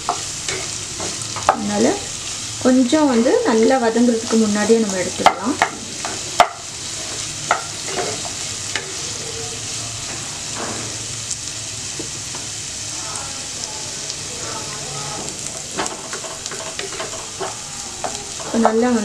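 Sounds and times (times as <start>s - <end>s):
spatula scraping and knocking pan: 0.0s - 1.7s, 5.1s - 9.0s, 15.7s - 19.0s
onions sizzling in oil: 0.0s - 19.0s.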